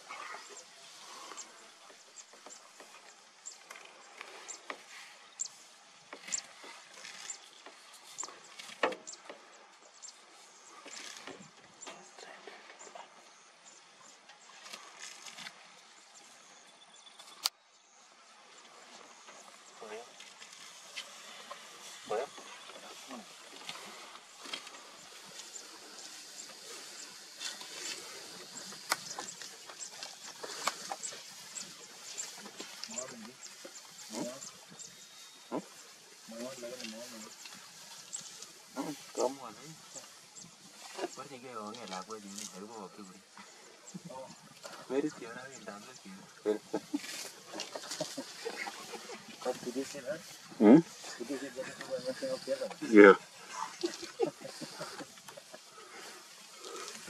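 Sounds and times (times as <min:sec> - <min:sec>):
elephant tearing and chewing grass: 0:06.2 - 0:09.1, 0:14.5 - 0:15.6, 0:20.2 - 0:42.6, 0:46.7 - 0:52.0.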